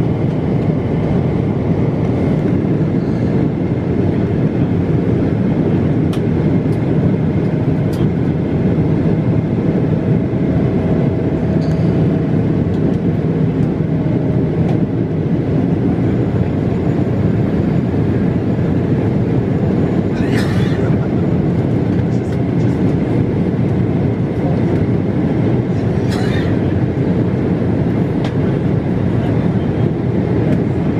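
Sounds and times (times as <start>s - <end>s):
low hum: 0.0s - 5.4s, 9.0s - 23.3s
jet engine and airflow rush: 0.0s - 30.9s.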